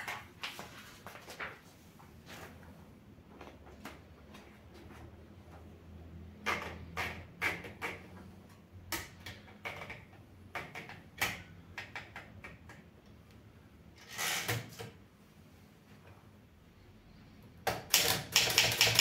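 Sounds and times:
paper rustling: 0.0 - 2.6
typewriter paper-feed clicks: 17.7 - 19.0.

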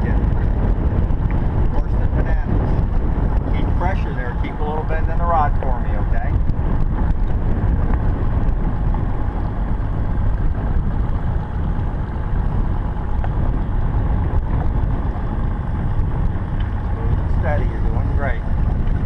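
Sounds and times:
boat motor running: 0.0 - 19.0.

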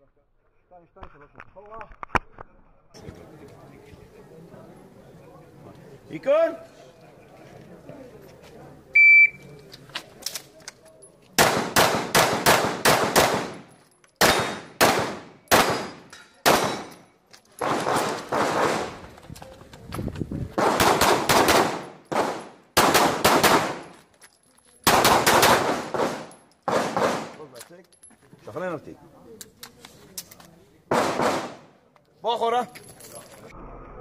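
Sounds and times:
rapid pistol shots: 11.4 - 13.6, 14.2 - 16.9, 17.6 - 19.0, 20.6 - 23.9, 24.9 - 27.3, 30.9 - 31.7.

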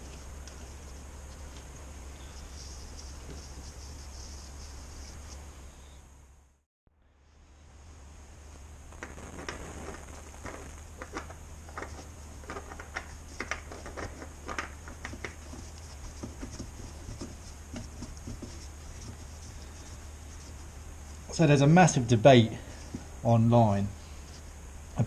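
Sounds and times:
steady low hum: 0.0 - 25.0
oil filter clicking and scraping: 10.4 - 20.8.

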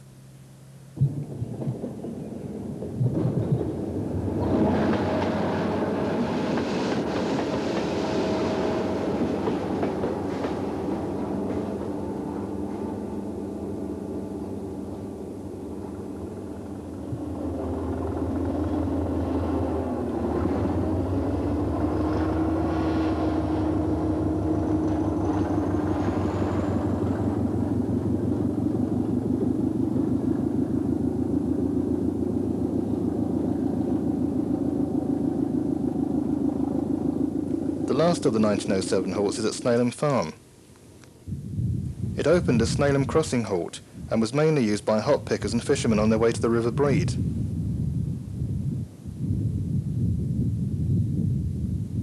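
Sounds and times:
diesel engine throbbing: 0.0 - 39.8
train wheels on rails: 1.0 - 39.3.

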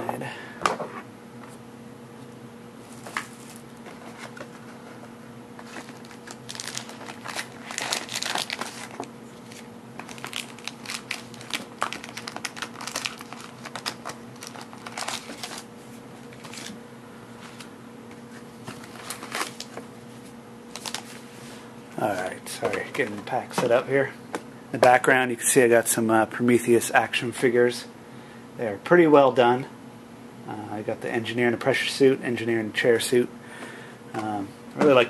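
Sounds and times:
steady low hum: 0.0 - 35.0
foil wrapper crinkling: 5.6 - 15.7, 16.3 - 16.8, 18.8 - 19.8, 20.7 - 21.2.

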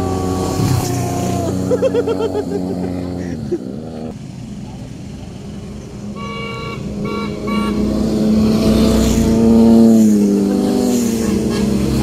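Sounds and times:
motorcycles passing: 0.0 - 12.0
horn tooting: 6.1 - 8.6, 11.0 - 12.0.

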